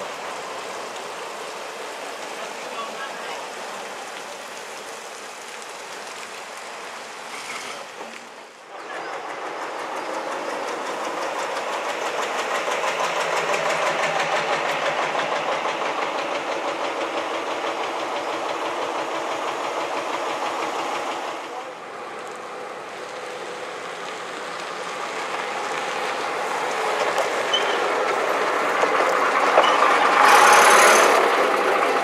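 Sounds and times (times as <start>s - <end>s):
steady hiss: 0.0s - 32.0s
bus diesel engine clattering: 7.5s - 32.0s.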